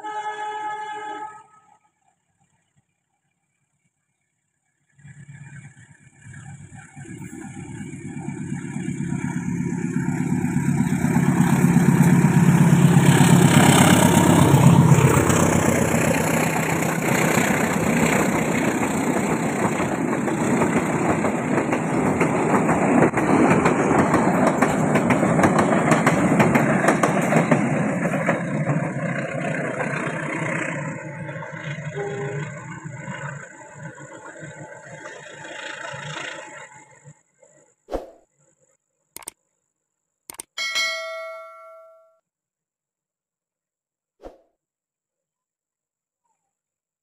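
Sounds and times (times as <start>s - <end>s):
locomotive engine hum: 4.8s - 37.7s
train carriages clattering on rails: 16.9s - 30.2s.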